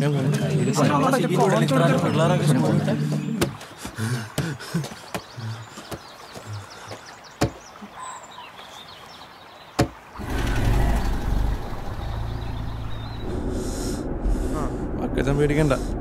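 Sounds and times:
vehicle engine rumbling: 0:10.2 - 0:16.0.

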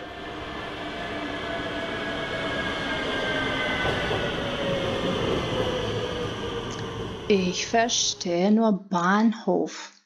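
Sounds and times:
high squeal from train wheels: 0:00.0 - 0:07.3
train running on rails: 0:00.0 - 0:08.4.

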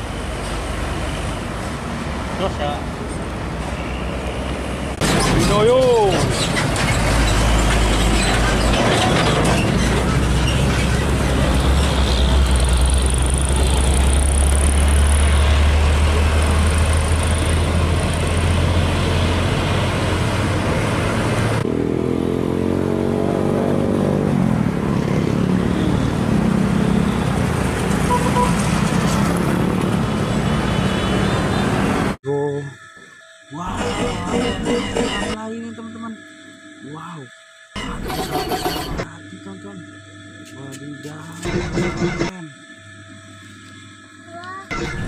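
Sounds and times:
tyre and traffic noise: 0:00.0 - 0:32.2
diesel truck engine rumble: 0:04.9 - 0:21.6
truck engine pulling away: 0:05.0 - 0:30.8.

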